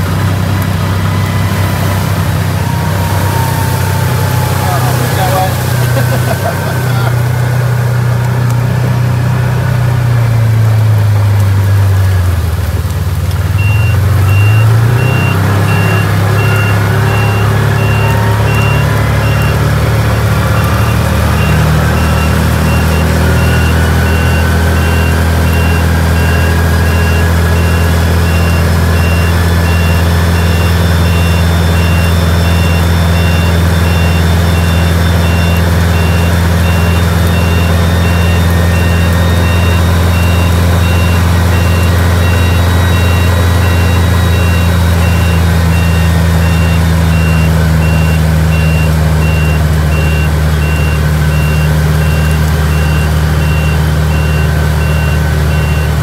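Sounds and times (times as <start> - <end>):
utility vehicle engine droning: 0.0 - 56.0
repeating high beep: 13.6 - 19.7, 20.5 - 56.0.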